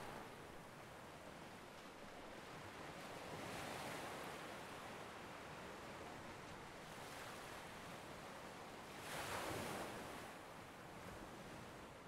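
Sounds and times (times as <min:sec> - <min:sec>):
ocean waves on shore: 0:00.0 - 0:04.8.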